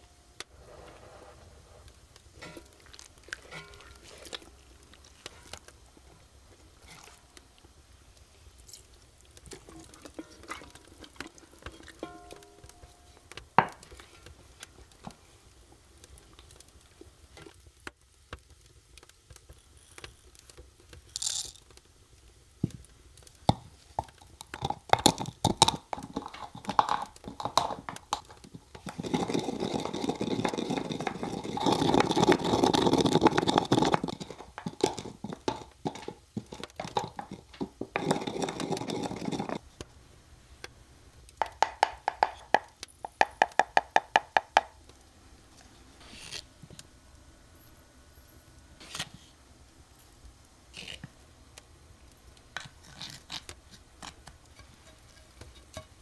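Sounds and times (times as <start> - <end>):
pestle grinding peppercorns: 23.5 - 39.6, 41.4 - 44.8.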